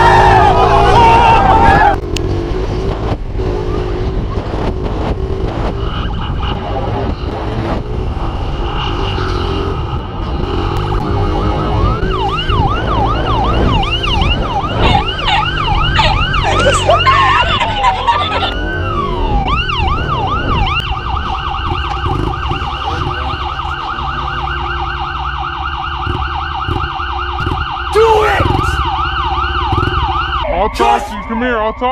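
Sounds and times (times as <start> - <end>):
police sirens yelping: 0.0 - 2.1, 5.7 - 31.9
dirt bike engine running: 25.8 - 30.2.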